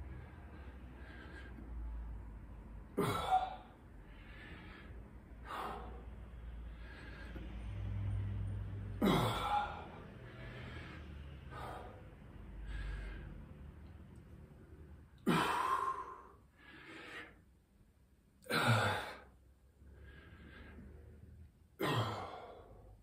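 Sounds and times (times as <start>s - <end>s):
man exhaling heavily: 15.2s - 17.4s.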